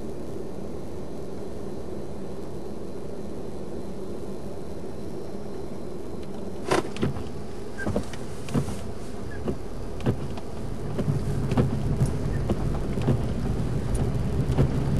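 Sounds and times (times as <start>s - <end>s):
road and engine rumble: 5.8s - 14.9s.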